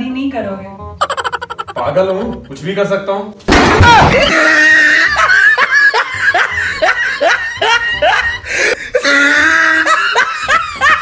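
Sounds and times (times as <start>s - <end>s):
person laughing: 1.0s - 2.5s, 4.2s - 11.0s.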